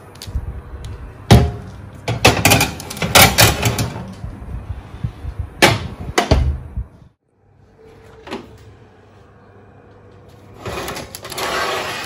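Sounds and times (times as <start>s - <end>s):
metal trays clattering on oven racks: 1.4s - 4.1s.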